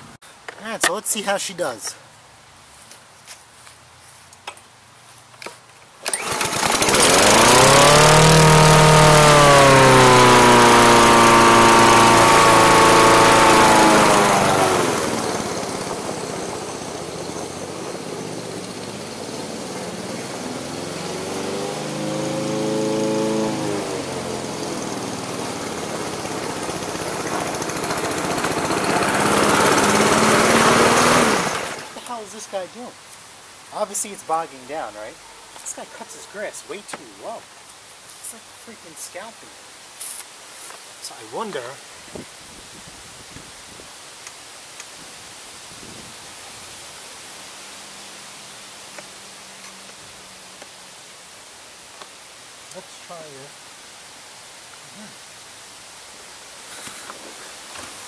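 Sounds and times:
lawn mower engine running: 0:05.4 - 0:32.2.

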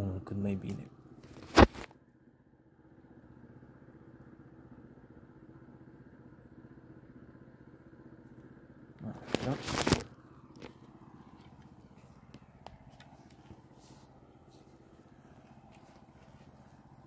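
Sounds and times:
vehicle engine drone: 0:00.0 - 0:17.0.

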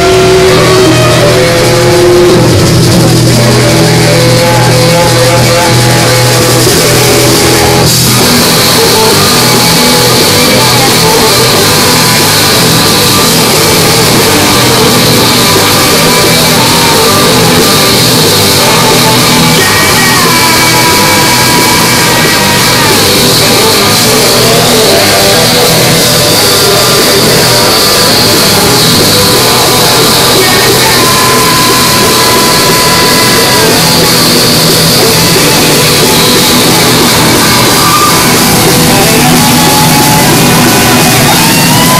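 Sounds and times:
drums: 0:00.0 - 0:41.9
electric guitar: 0:00.0 - 0:41.9
live rock band playing: 0:00.0 - 0:41.9
saxophone: 0:00.0 - 0:41.9.

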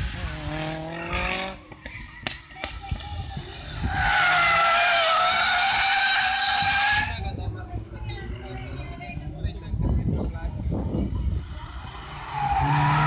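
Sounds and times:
car engine: 0:00.0 - 0:01.8, 0:11.2 - 0:13.0
car tyres squealing: 0:03.7 - 0:07.2, 0:11.7 - 0:13.0.

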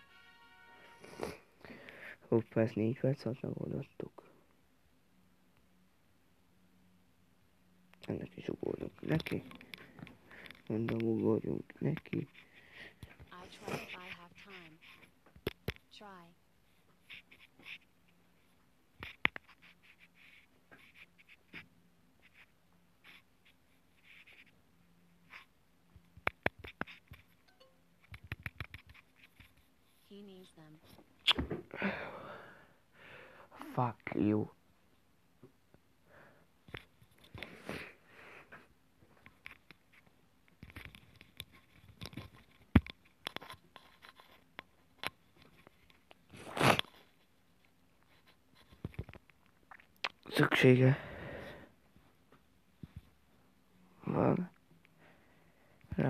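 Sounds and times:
small clicks and taps: 0:40.4 - 0:46.2.

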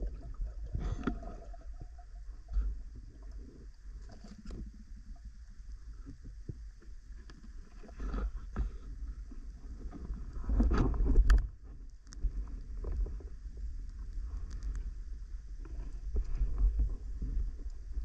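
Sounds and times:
underwater rumble: 0:00.0 - 0:18.0.

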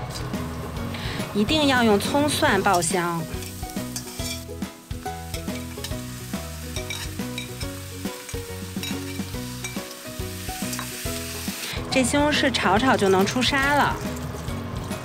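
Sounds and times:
light background music: 0:00.0 - 0:15.0
vegetables sizzling in a wok: 0:00.0 - 0:15.0
metal spatula scraping a pan: 0:02.6 - 0:04.5, 0:06.7 - 0:09.9.

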